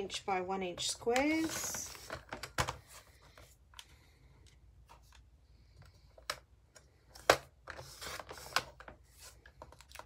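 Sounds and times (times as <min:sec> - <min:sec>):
paper squares being shuffled: 0:00.8 - 0:03.6.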